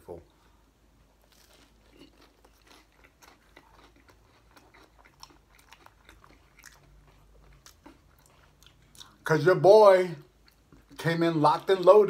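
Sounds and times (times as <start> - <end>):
crunchy bread chewing: 1.2 - 9.2.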